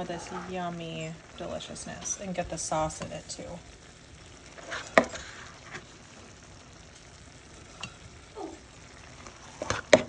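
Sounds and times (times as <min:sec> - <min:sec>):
food sizzling in a pan: 0:00.0 - 0:10.0
spoon scraping a pan: 0:04.6 - 0:05.9, 0:09.2 - 0:10.0.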